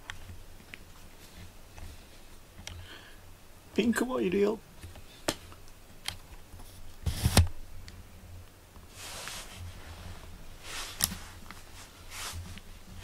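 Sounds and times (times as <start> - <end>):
soft handling rustles: 0.0 - 2.8, 8.8 - 13.0.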